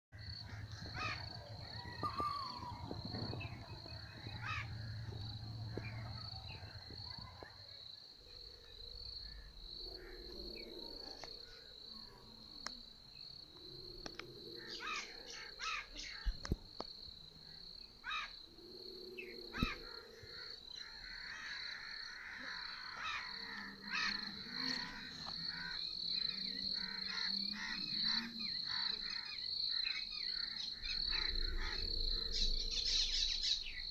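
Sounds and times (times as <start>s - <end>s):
low rumble: 0.2s - 7.2s
insects trilling: 0.2s - 33.9s.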